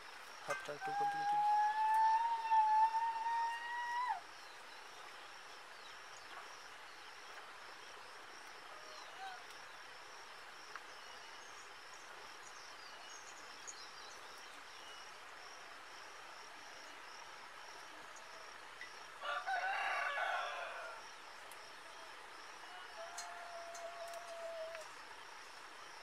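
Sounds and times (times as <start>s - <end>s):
insects chirping: 0.0s - 26.0s
rooster crowing: 19.2s - 21.0s, 22.6s - 24.9s.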